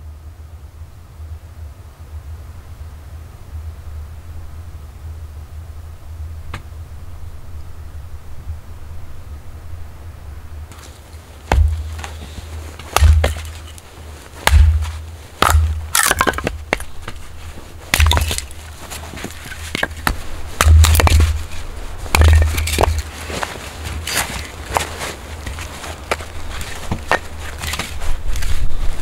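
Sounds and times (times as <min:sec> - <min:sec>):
axe chopping wood: 0:10.7 - 0:13.8, 0:14.4 - 0:17.3, 0:17.9 - 0:23.1
split wood cracking and clattering: 0:10.7 - 0:28.6
dull thud of chopping block: 0:11.5 - 0:12.2, 0:12.8 - 0:13.6, 0:14.4 - 0:16.9, 0:19.8 - 0:21.4.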